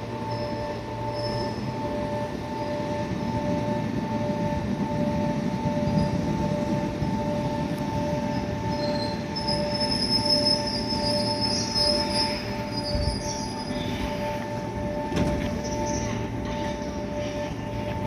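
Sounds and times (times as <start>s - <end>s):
electric train rumbling: 0.0s - 18.0s
brakes squealing: 8.2s - 18.0s.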